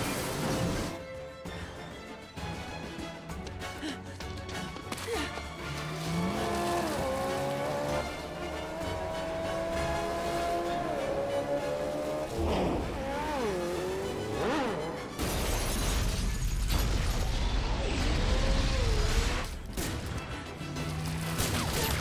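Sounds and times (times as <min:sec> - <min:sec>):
action film music: 0:00.0 - 0:22.0
crash: 0:15.2 - 0:20.2.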